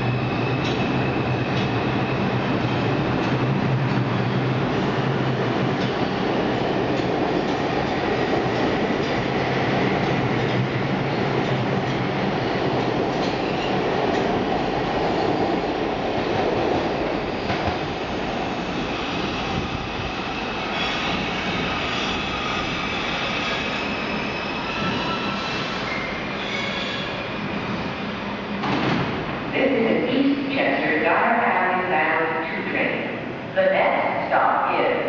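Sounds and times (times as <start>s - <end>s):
subway train wheels rumbling: 0.0s - 35.0s
high tones from train: 23.4s - 27.3s.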